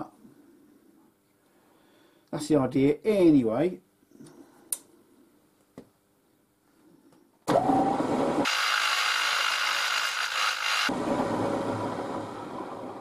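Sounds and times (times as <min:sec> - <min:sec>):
milling machine running: 0:07.6 - 0:11.0
drill bit cutting steel: 0:08.4 - 0:10.9.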